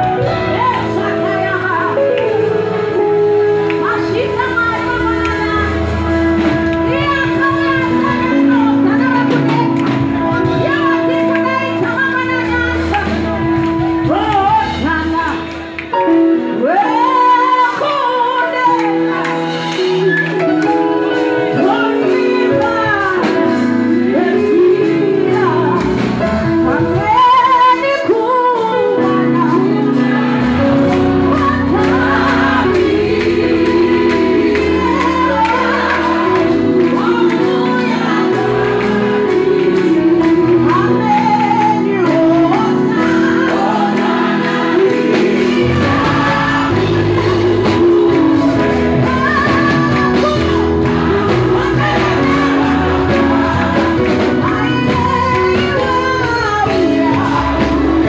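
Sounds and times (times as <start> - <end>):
instrumental accompaniment with bass: 0.0 - 58.0
woman singing into microphone: 0.0 - 58.0
backing singers: 29.0 - 58.0.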